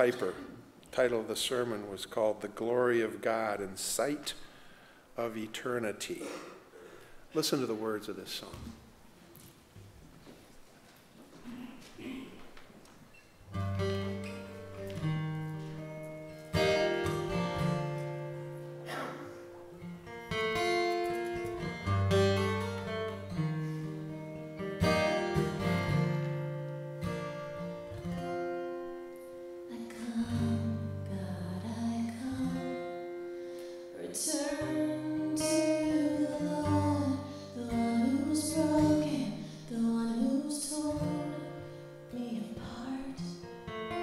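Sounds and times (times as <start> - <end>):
acoustic guitar strumming: 13.5 - 44.0
woman singing: 29.7 - 33.1, 33.9 - 43.4.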